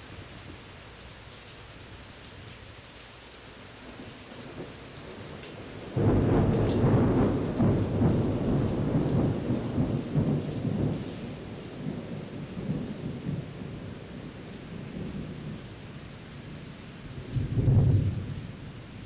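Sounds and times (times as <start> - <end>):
steady rain: 0.0 - 19.0
thunder rumbling: 4.4 - 19.0.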